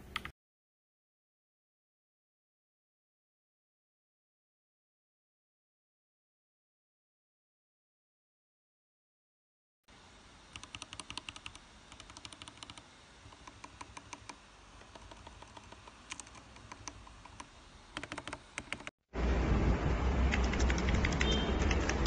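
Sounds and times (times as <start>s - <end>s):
mechanical keyboard typing: 10.6s - 18.9s, 20.3s - 22.0s.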